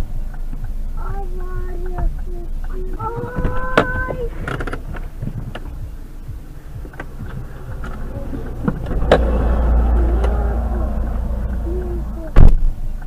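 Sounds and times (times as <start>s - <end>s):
road and engine rumble: 0.0s - 13.0s
loud car collision bang: 6.8s - 12.6s.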